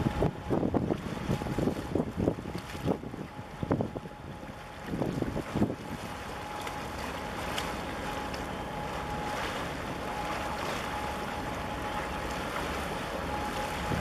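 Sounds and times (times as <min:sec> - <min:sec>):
wind on microphone: 0:00.0 - 0:06.2, 0:13.7 - 0:14.0
water washing against breakwater: 0:00.0 - 0:14.0.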